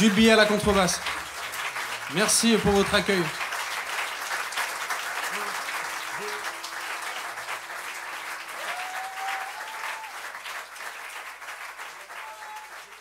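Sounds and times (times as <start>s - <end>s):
audience applauding: 0.0s - 13.0s
long call from crowd: 8.6s - 10.3s, 12.0s - 13.0s.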